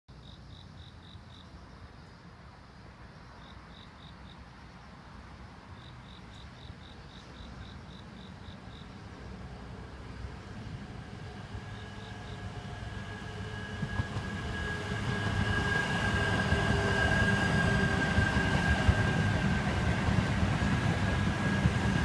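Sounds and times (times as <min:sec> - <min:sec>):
insect chirping: 0:00.1 - 0:22.0
approaching train rumble: 0:07.0 - 0:22.0.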